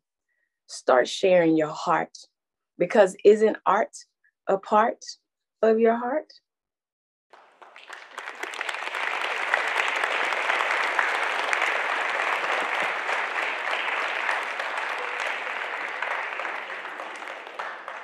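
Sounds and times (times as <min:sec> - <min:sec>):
audience applauding: 0:07.4 - 0:18.0.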